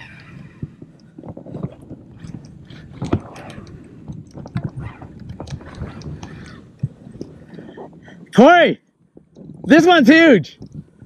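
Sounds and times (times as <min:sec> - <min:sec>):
kayak gear knocks and clicks: 0:00.6 - 0:08.0, 0:09.1 - 0:09.7, 0:10.6 - 0:11.0.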